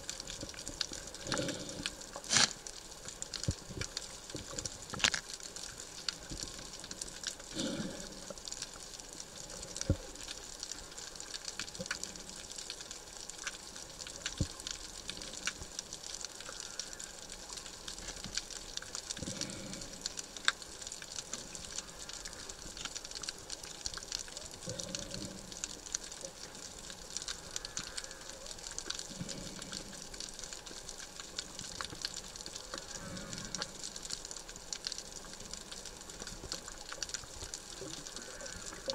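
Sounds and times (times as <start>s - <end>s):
sharp clicks and crackles: 0.0s - 38.9s
underwater hiss: 1.0s - 2.6s, 7.5s - 8.4s, 19.2s - 20.5s, 32.6s - 34.0s.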